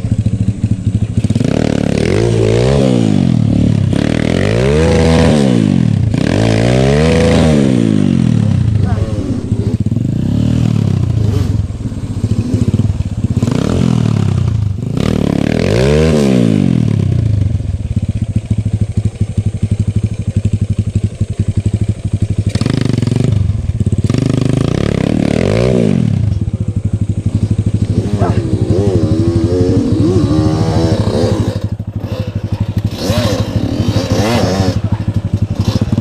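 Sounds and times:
motorcycle engine revving: 0.0 - 36.0.

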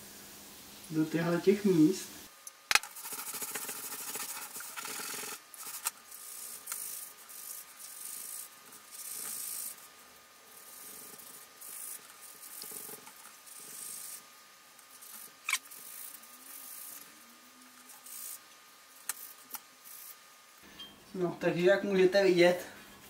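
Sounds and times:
sponge scrubbing metal: 2.9 - 14.2.

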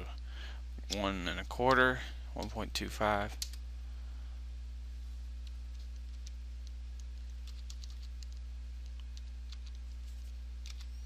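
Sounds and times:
steady low hum: 0.0 - 11.0
keyboard keys clicking: 5.4 - 9.9.

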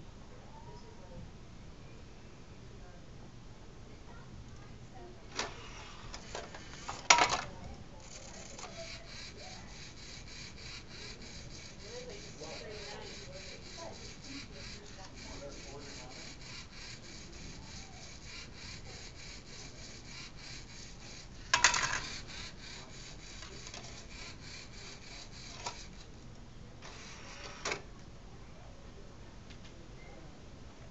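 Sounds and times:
motor whirring with rapid ticks: 5.3 - 27.8.

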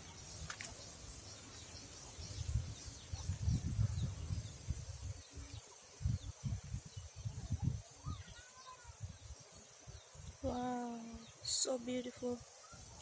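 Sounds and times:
faint bird chirps: 0.0 - 13.0
wind buffeting microphone: 1.9 - 11.6.

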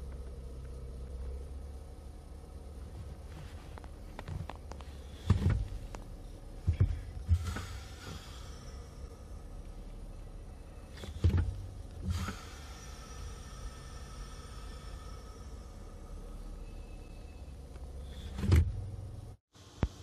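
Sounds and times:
steady low hum: 0.0 - 20.0
brake pedal thumps: 2.9 - 8.4, 10.9 - 12.4, 17.7 - 19.1.

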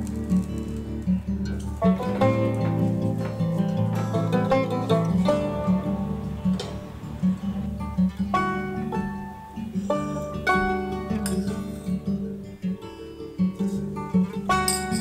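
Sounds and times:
steady bass: 0.0 - 11.5
plucked acoustic guitar: 0.0 - 15.0.

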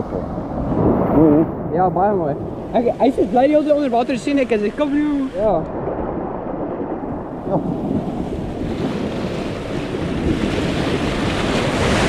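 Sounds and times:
surf washing over rocks: 0.0 - 12.0
wind buffeting microphone: 0.0 - 12.0.

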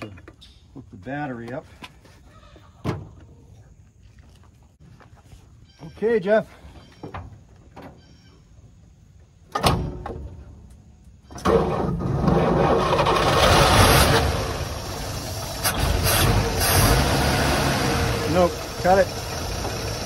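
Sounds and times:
truck engine cranking: 11.3 - 20.0
truck engine running: 13.0 - 20.0.

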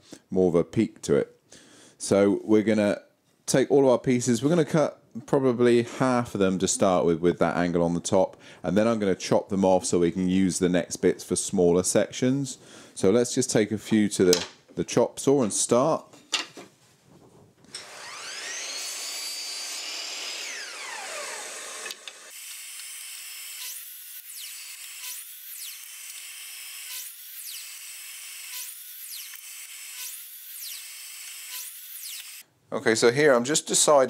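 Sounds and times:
mitre saw motor whine: 17.8 - 22.6.

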